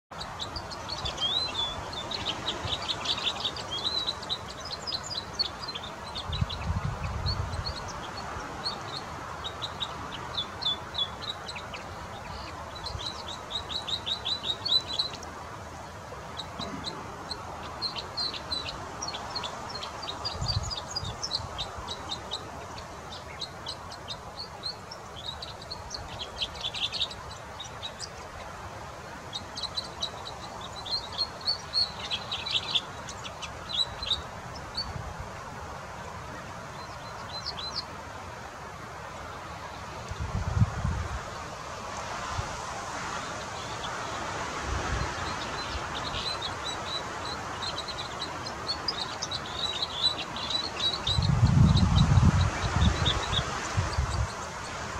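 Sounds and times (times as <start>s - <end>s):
bird chirping and trilling: 0.1s - 15.2s, 16.4s - 28.5s, 29.3s - 35.0s, 45.0s - 54.5s.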